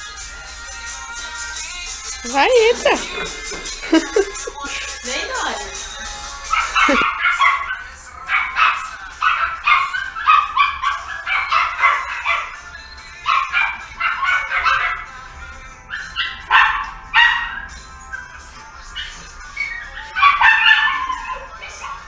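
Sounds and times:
background music: 0:00.0 - 0:22.0
small dog yapping: 0:06.5 - 0:12.6, 0:13.3 - 0:15.1, 0:15.9 - 0:18.4, 0:19.0 - 0:22.0.

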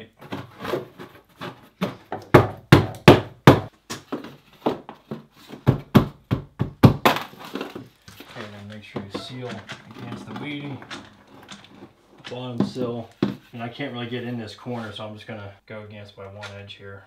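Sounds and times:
wooden knocks and taps: 0:08.9 - 0:13.5.

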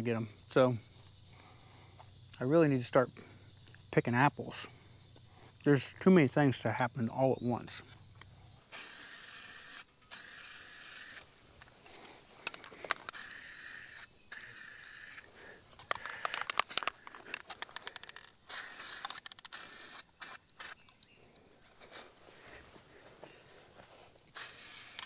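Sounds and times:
aerosol paint spraying: 0:08.7 - 0:11.2, 0:13.1 - 0:15.2, 0:18.5 - 0:20.8, 0:24.3 - 0:25.0.

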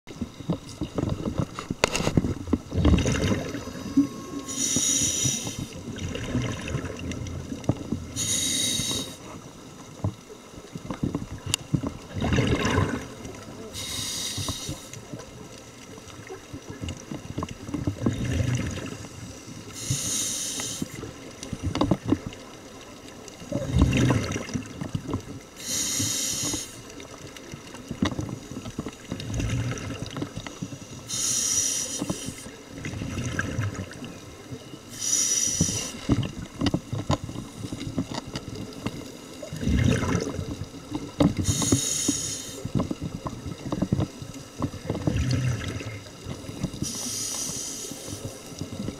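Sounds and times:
exhaust bubbles rumbling: 0:02.4 - 0:04.6, 0:05.7 - 0:08.3, 0:10.9 - 0:13.5, 0:17.1 - 0:19.2, 0:23.4 - 0:25.3, 0:29.1 - 0:30.4, 0:32.7 - 0:34.3, 0:39.4 - 0:41.6, 0:44.6 - 0:46.8
regulator inhale hiss: 0:03.7 - 0:05.8, 0:08.1 - 0:09.3, 0:13.7 - 0:15.0, 0:19.2 - 0:21.0, 0:25.6 - 0:26.8, 0:30.5 - 0:32.5, 0:34.9 - 0:36.1, 0:41.4 - 0:42.7, 0:46.7 - 0:48.5.

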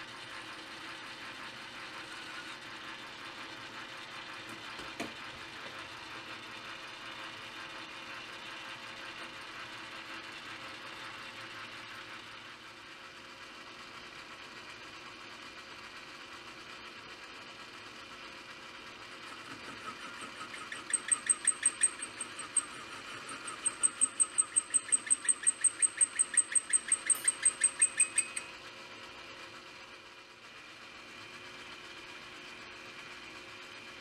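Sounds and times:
cutting tool chirping: 0:19.5 - 0:28.6.

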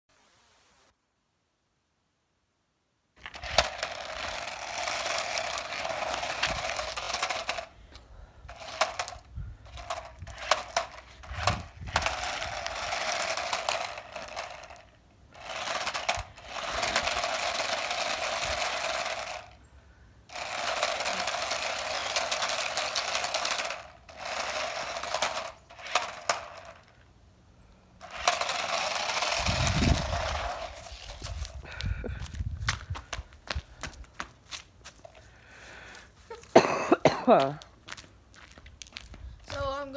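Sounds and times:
toy car electric motor whining: 0:03.2 - 0:07.8, 0:08.5 - 0:19.6, 0:20.3 - 0:27.0, 0:28.0 - 0:31.6
wheels rattling over concrete: 0:03.2 - 0:27.1, 0:28.0 - 0:37.6.

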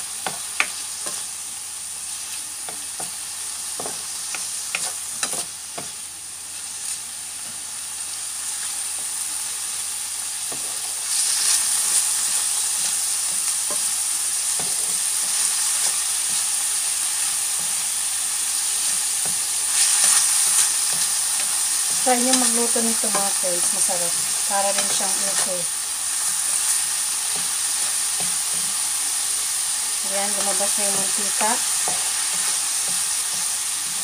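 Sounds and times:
meat sizzling in a frying pan: 0:00.0 - 0:34.0
spatula scraping and tapping pan: 0:03.8 - 0:06.0.

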